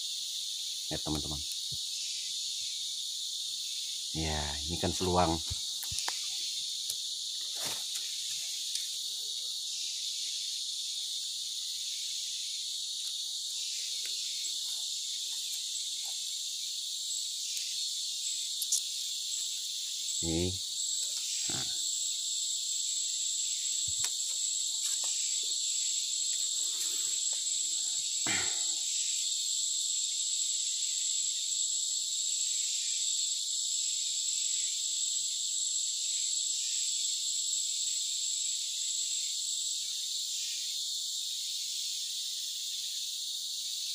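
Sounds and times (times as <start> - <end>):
forest insects chorus: 0.0 - 43.9.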